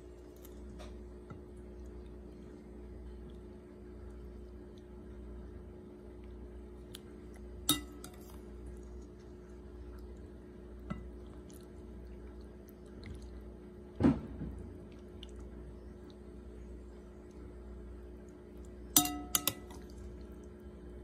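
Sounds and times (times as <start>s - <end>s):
metal ladle clinking on bowl: 7.7s - 8.2s, 19.0s - 19.8s.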